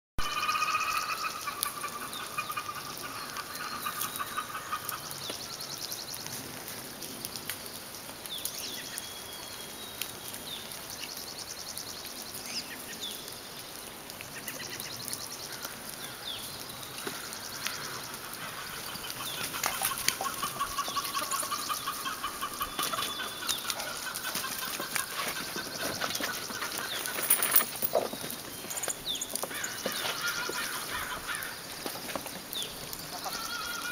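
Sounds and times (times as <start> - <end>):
chickens clucking and calling: 0.2 - 5.2, 17.8 - 27.8, 29.6 - 31.6.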